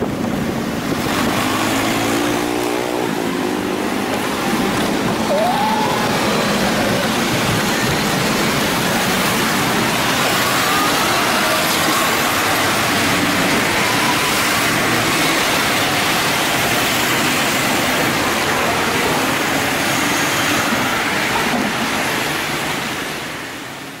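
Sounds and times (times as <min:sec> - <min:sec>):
road traffic passing: 0:00.0 - 0:24.0.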